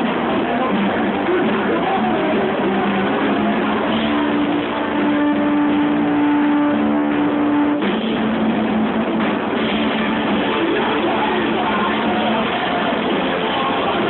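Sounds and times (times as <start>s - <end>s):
live band with electric guitar: 0.0s - 14.0s.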